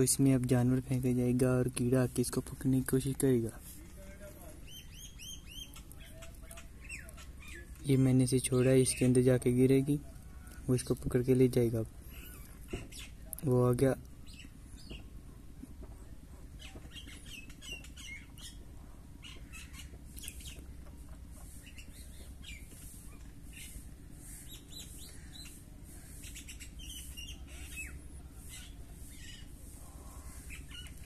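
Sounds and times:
low steady rumble: 0.0 - 31.0
small birds chirping: 0.0 - 31.0.

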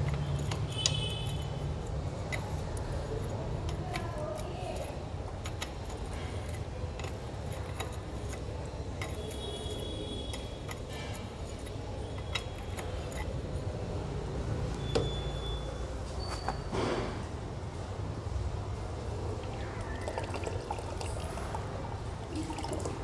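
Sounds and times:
spanner clicking on screws: 0.0 - 13.6.

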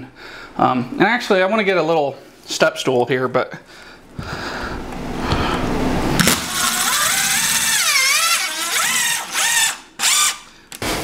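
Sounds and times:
power drill driving screw: 6.2 - 10.5.

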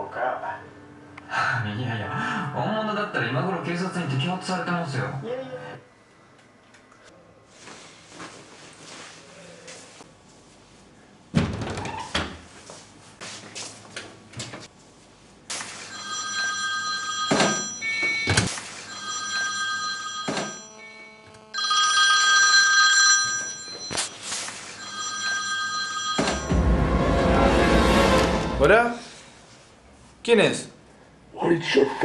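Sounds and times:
smartphone ringtone: 15.9 - 26.9.

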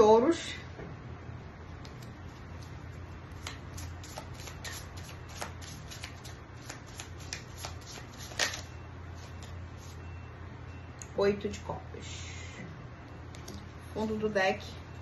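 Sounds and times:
steady low hum: 0.0 - 15.0
cards being shuffled: 3.3 - 9.5.

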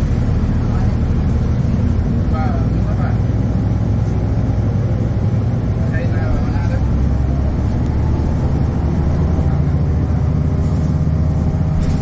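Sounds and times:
bus engine droning: 0.0 - 12.0.

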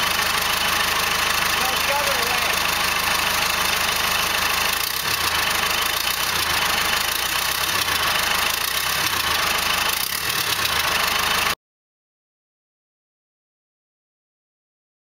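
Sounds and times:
diesel engine idling: 0.0 - 11.6.

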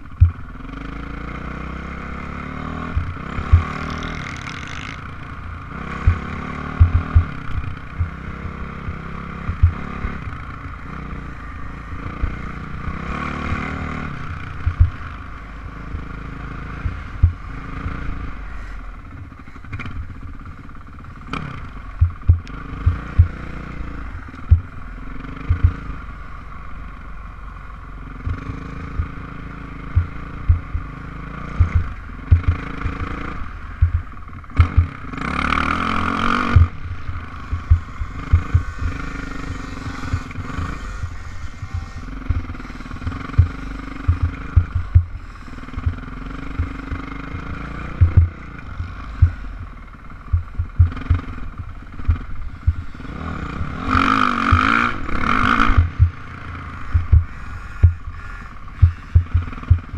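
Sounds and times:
low thumps: 0.0 - 0.6, 2.9 - 4.0, 5.6 - 10.4, 14.6 - 15.0, 16.8 - 17.6, 21.9 - 23.5, 24.2 - 24.8, 25.4 - 26.0, 29.9 - 35.1, 36.4 - 45.2, 45.8 - 52.9, 55.7 - 56.2, 56.9 - 58.1, 58.8 - 59.9
dirt bike engine revving: 0.0 - 59.9.

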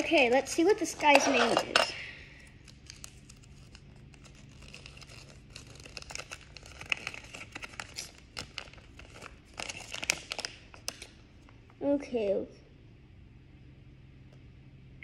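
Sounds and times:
paper crinkling: 2.5 - 11.2.

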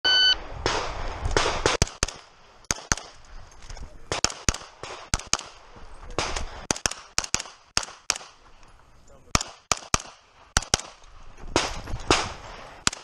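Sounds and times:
gunshots: 0.6 - 3.2, 4.1 - 8.4, 9.3 - 13.0.

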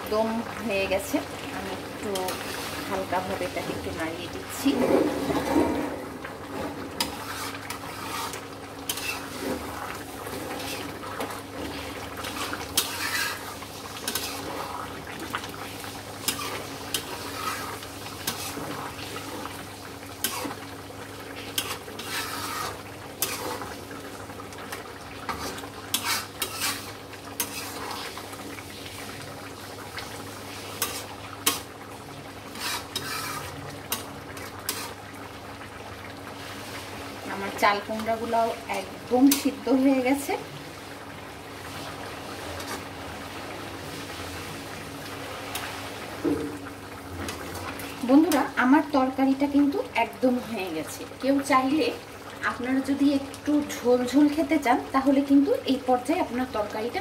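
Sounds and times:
curry simmering: 0.0 - 57.0
spoon scraping metal pan: 7.0 - 9.7, 12.3 - 14.6, 16.2 - 18.8, 20.2 - 20.6, 21.5 - 23.7, 25.3 - 28.1, 30.8 - 31.7, 32.5 - 35.0.

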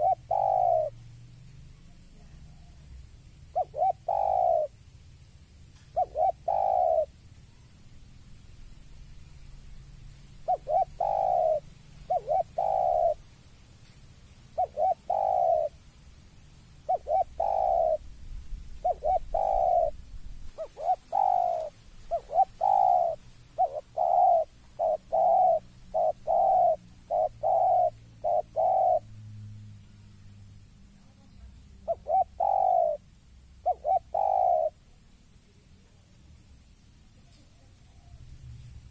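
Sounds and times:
dove cooing: 0.0 - 1.0, 1.8 - 4.8, 5.9 - 7.7, 10.4 - 13.2, 14.5 - 15.8, 16.8 - 18.1, 18.7 - 29.2, 31.0 - 36.0, 37.2 - 38.9.

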